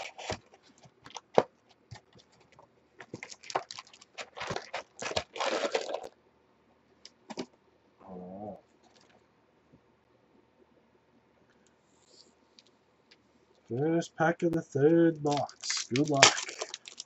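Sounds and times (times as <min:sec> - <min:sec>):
rustling and tearing packs: 0:00.0 - 0:06.2, 0:15.2 - 0:17.0.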